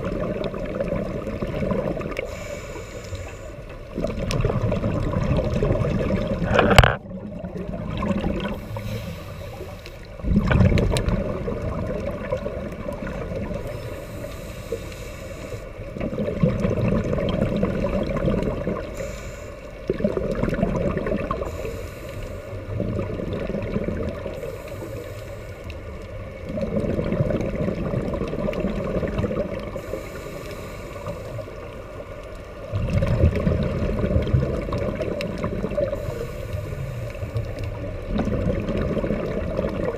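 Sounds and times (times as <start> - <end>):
regulator hiss: 2.2 - 3.7, 8.6 - 10.1, 13.7 - 15.8, 18.8 - 19.8, 21.4 - 22.7, 24.4 - 25.9, 29.8 - 31.7, 35.8 - 37.6
regulator bubbling: 3.9 - 8.7, 15.9 - 18.9, 19.9 - 21.6, 26.4 - 29.8, 32.7 - 36.2, 36.9 - 39.9.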